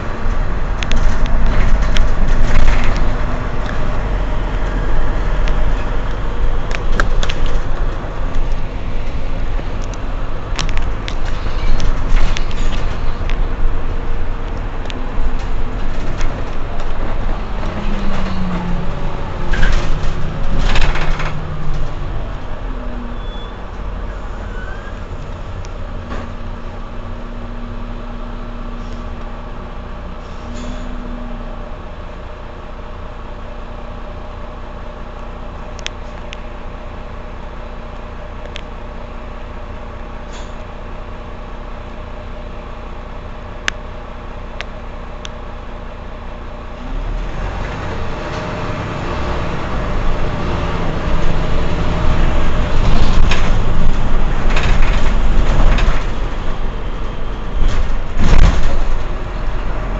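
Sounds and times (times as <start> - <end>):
bus diesel engine idling: 0.0 - 59.9.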